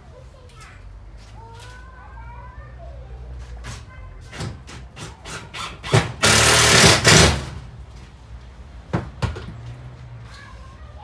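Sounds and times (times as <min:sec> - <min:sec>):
power drill driving screw: 0:05.0 - 0:07.5.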